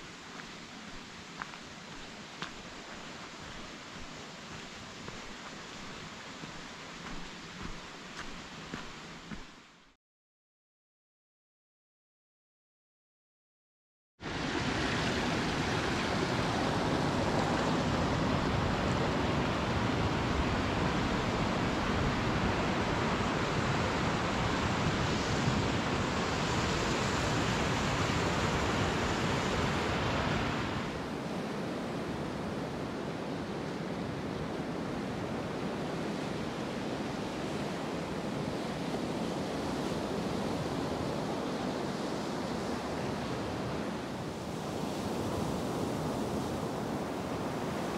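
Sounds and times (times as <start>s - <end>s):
surf washing up a sandy beach: 14.2s - 47.9s.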